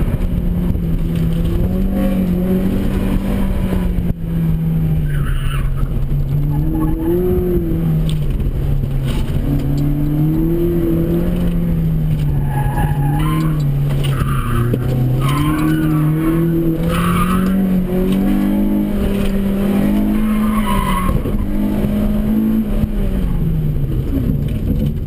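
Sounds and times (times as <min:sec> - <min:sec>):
car engine revving hard: 0:00.0 - 0:05.0, 0:09.1 - 0:23.6.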